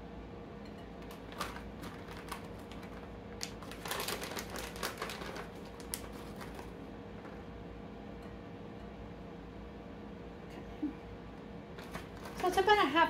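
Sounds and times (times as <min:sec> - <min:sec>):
plastic bag crinkling: 0:01.0 - 0:06.8, 0:11.8 - 0:12.8.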